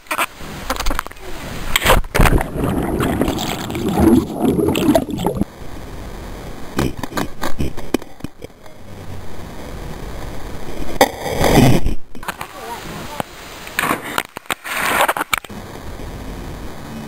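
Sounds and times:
splash into water: 1.8 - 5.4
water sloshing: 2.1 - 5.4
underwater churning and gurgling: 2.1 - 5.5.

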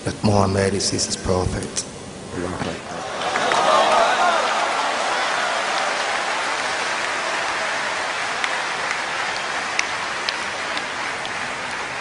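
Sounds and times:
large crowd noise in hall: 2.6 - 12.0.

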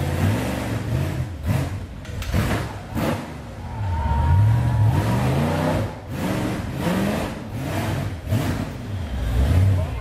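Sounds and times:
buggy engine revving hard: 0.0 - 10.0.

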